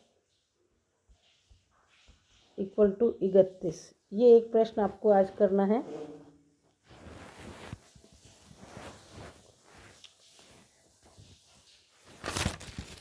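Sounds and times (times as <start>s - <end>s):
faint rustling: 5.4s - 13.0s.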